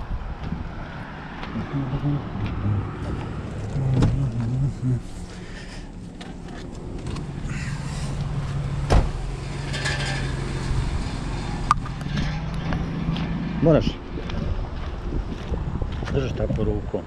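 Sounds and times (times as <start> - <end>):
vehicle engine humming: 0.0 - 17.0
car door slamming: 8.8 - 9.3.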